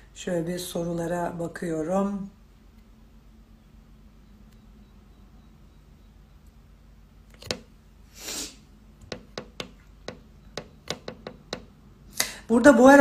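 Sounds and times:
breath: 12.2 - 12.5.

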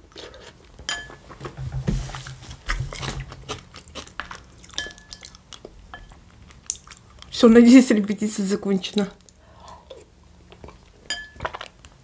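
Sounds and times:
person chewing food: 0.0 - 1.6, 2.6 - 7.3, 9.2 - 12.0.

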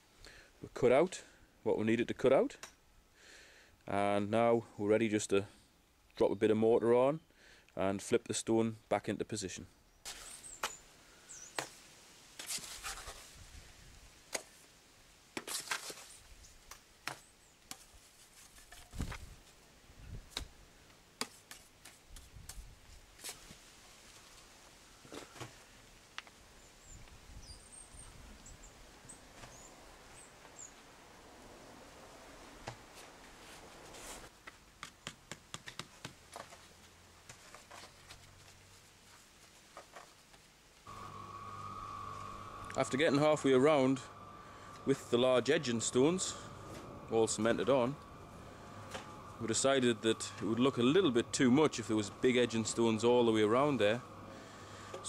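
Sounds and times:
trowel scraping mortar: 12.4 - 13.3, 15.4 - 16.2.

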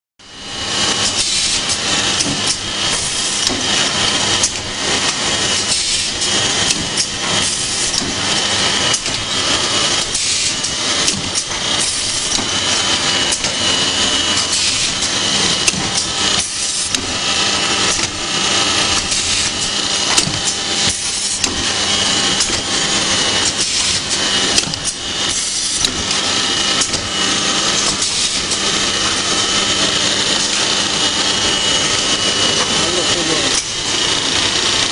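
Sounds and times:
machine hum and whine: 0.2 - 34.9
machine parts clicking and knocking: 1.0 - 13.6, 17.8 - 30.8.

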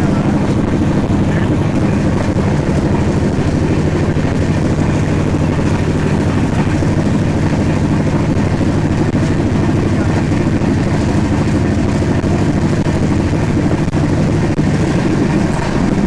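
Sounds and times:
low hum: 0.0 - 16.0
rush of wind: 0.0 - 16.0
train wheels on rails: 0.0 - 16.0.

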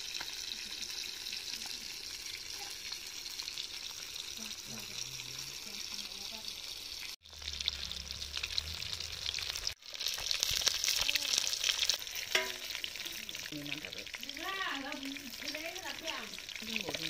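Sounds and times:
fish sizzling in hot oil: 0.0 - 17.0
metal spatula scraping wok: 11.7 - 13.2.

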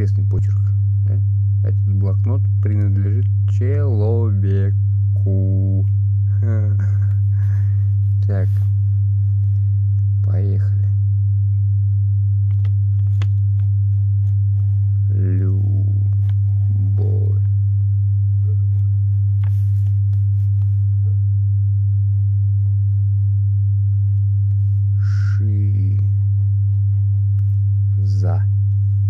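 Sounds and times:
steady low hum: 0.0 - 29.0
short voice sounds: 24.9 - 26.2.

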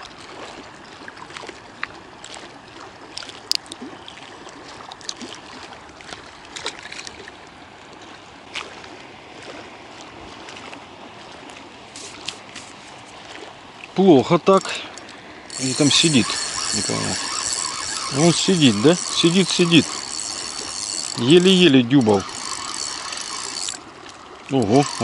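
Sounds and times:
small waves lapping on concrete: 0.0 - 25.0
fishing tackle clicks: 14.6 - 23.8, 24.5 - 25.0.

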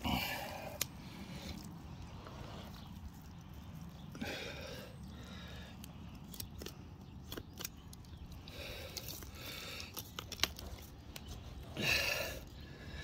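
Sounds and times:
blade clicking on bones: 5.7 - 11.3.

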